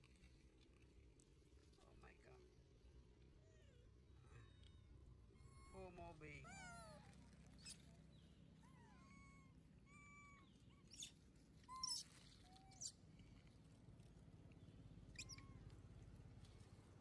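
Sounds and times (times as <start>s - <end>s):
monkey high squeaks: 7.6s - 7.8s, 9.1s - 11.1s, 11.7s - 12.9s, 15.1s - 15.6s
monkey coo calls: 11.7s - 12.9s, 15.1s - 15.6s.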